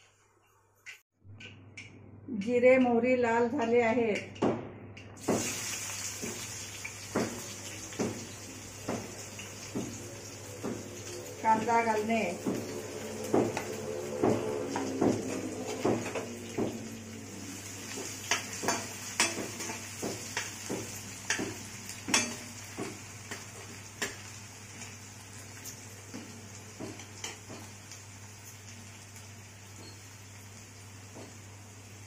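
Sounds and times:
onion sizzling in oil: 5.2s - 32.0s
metal spoon knocking on pan: 7.1s - 10.0s, 12.4s - 16.8s, 18.2s - 23.4s, 26.1s - 27.7s.

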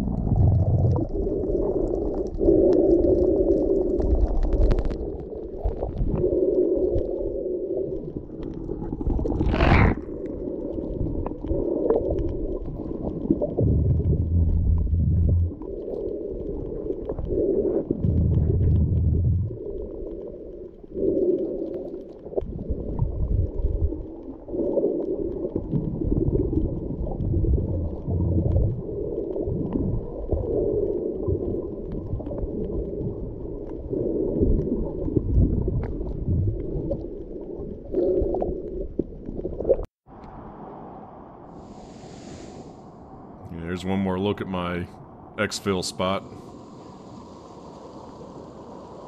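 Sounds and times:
steady hiss: 41.4s - 43.2s, 45.5s - 49.0s.

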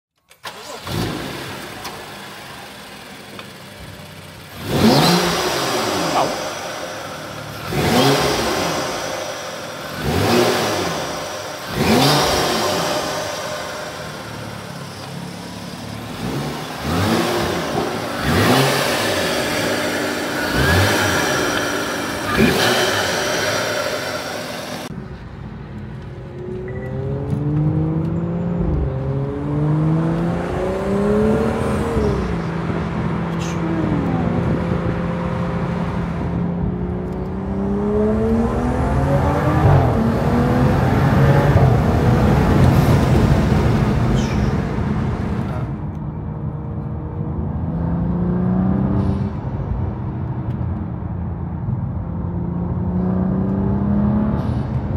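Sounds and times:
car engine revving: 0.4s - 25.0s, 26.0s - 46.0s
car accelerating through gears: 4.5s - 14.3s, 16.0s - 24.9s, 26.6s - 45.7s.

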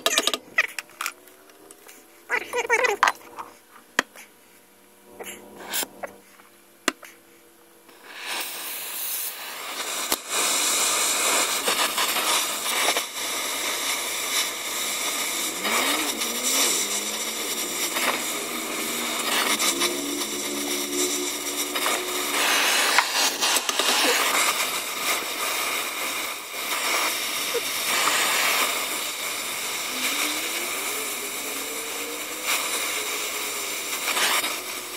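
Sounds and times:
cutting torch hissing roar: 7.9s - 34.9s.

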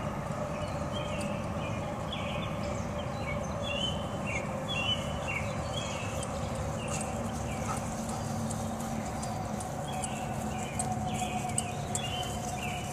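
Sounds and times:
songbirds chirping: 0.0s - 12.9s
hoofbeats on grass: 5.0s - 12.9s.

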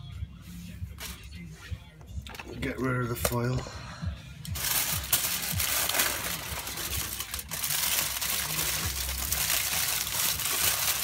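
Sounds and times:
foil crumpling: 4.5s - 11.0s.

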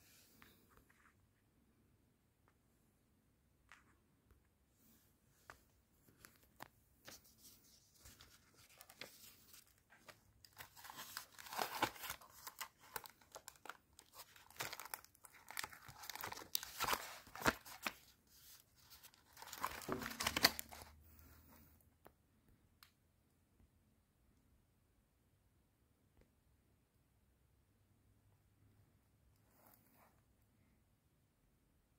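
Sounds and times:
book pages rustling: 5.4s - 21.0s.

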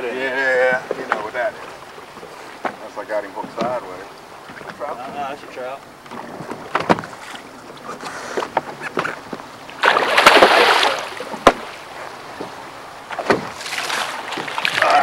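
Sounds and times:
fish splashing at surface: 9.8s - 11.7s.

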